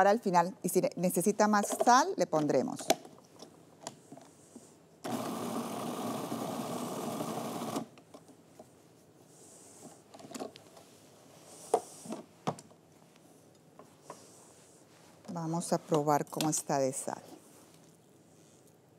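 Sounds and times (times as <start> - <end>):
food processor motor chopping: 5.1 - 7.9.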